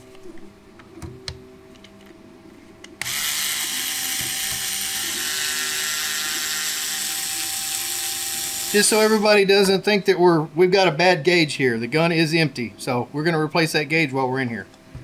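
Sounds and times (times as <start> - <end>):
electric screwdriver motor whine: 3.0 - 9.3.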